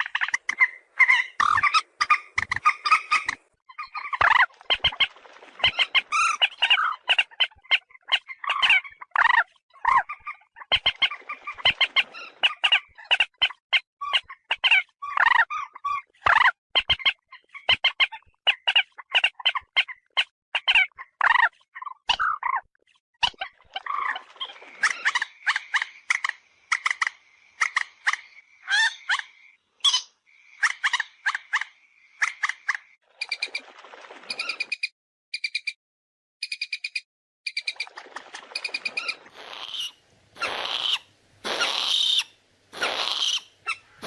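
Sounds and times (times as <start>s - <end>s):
moorhen calling: 38.7s - 44.0s.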